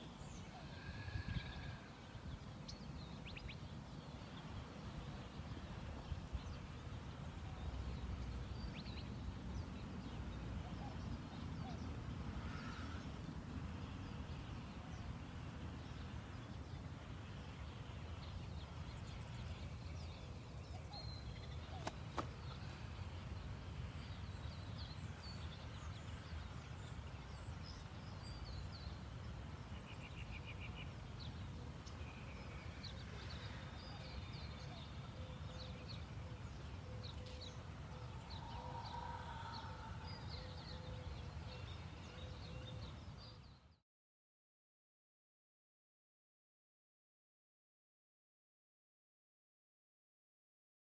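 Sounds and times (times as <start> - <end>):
small birds chirping: 17.5 - 43.8.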